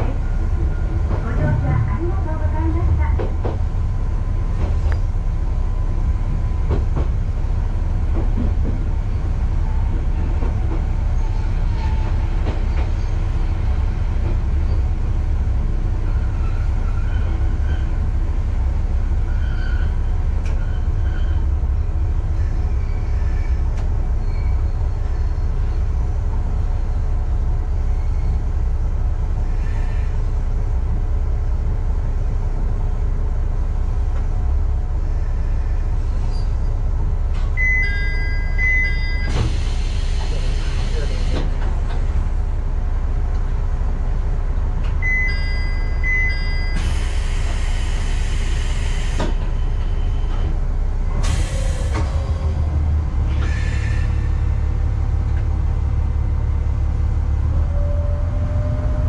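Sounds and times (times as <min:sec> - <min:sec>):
diesel railcar engine rumble: 0:00.0 - 0:59.0
faint wheel squeals: 0:22.4 - 0:25.5, 0:35.2 - 0:36.7.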